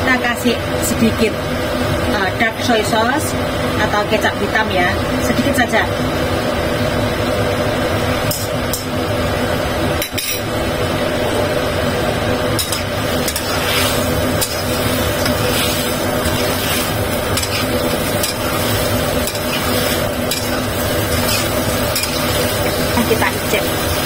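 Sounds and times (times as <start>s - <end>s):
steady hum: 0.0s - 24.0s
light sizzle: 12.4s - 24.0s
metal spatula scraping wok: 12.6s - 23.6s.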